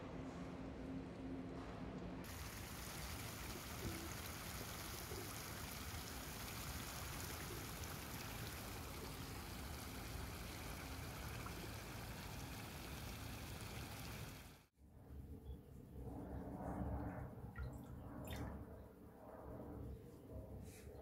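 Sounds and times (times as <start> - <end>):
fountain water trickling and splashing: 2.2 - 14.7.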